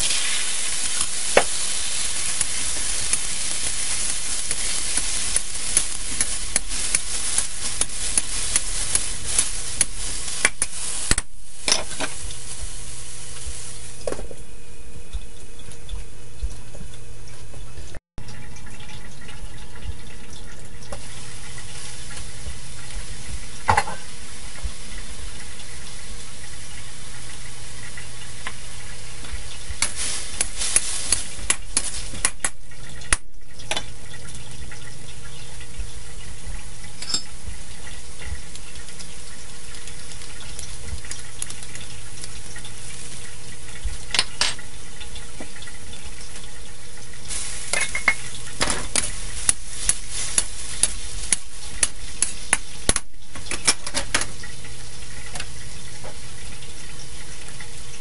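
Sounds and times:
spatula scraping and tapping wok: 0.0 - 12.7, 47.3 - 54.4
broccoli sizzling in wok: 0.0 - 15.0, 20.9 - 58.0.

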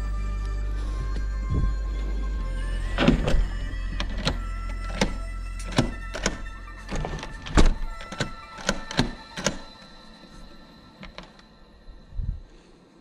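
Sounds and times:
background music: 0.0 - 13.0
deadbolt thumb turn clicking: 4.0 - 9.7.

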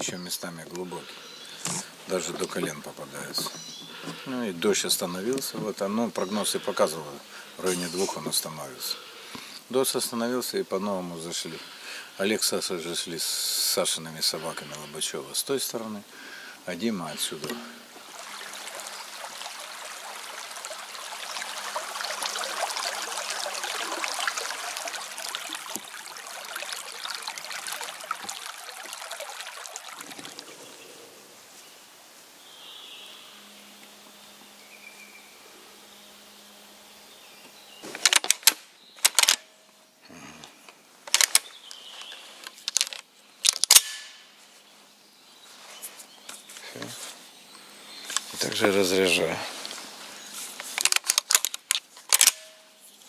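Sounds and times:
outdoor hiss with patter: 0.0 - 53.0
metallic clacks of shotgun action: 38.1 - 39.4, 42.8 - 44.2, 50.8 - 52.6.

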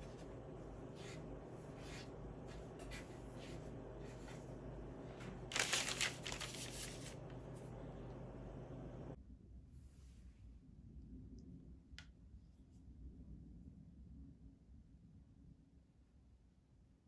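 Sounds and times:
steady low hum: 0.0 - 9.2
hands rustling and brushing: 5.5 - 7.2.

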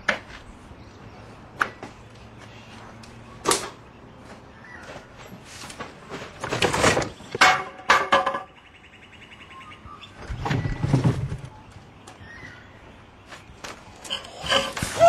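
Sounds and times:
objects scraping and clattering: 5.3 - 8.6, 10.2 - 11.8, 13.6 - 15.0.

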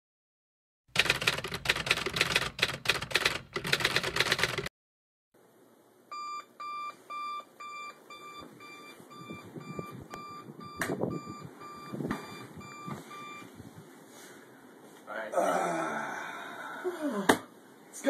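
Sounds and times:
alarm clock beeping: 6.1 - 13.5.

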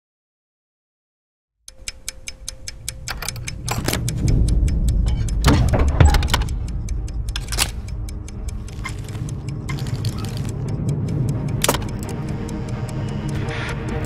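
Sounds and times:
metallic clicks and rattles of controls: 1.8 - 14.0
low rumble: 2.1 - 14.0
loud metal clanks: 5.0 - 7.8.

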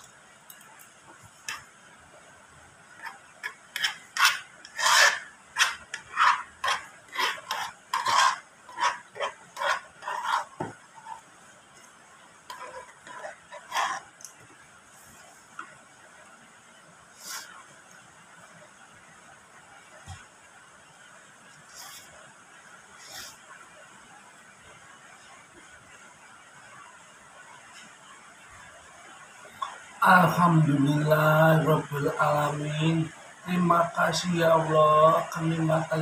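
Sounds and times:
scraping plastic plate: 2.9 - 11.3, 12.5 - 14.2.

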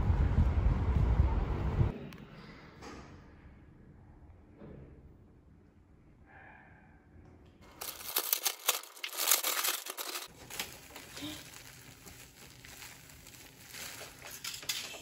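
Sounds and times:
packaging crinkling and rustling: 7.7 - 15.0.

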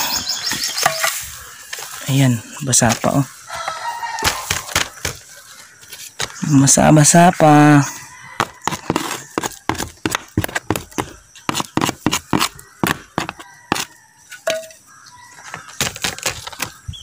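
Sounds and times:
plastic tray knocking on ground: 8.4 - 13.8.

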